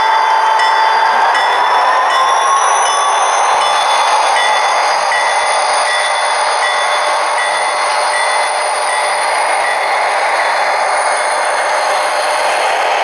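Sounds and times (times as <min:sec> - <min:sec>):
wheels running on rails: 0:00.0 - 0:13.0.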